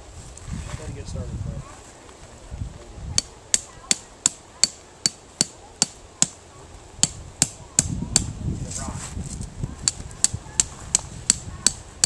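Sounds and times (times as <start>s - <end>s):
hammer striking tent stake: 3.2s - 6.4s.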